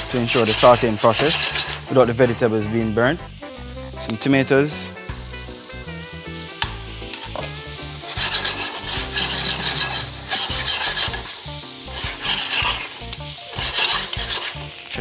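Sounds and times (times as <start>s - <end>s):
vegetables sizzling in a pan: 0.0s - 15.0s
tongs scraping a pan: 0.1s - 2.6s, 6.5s - 15.0s.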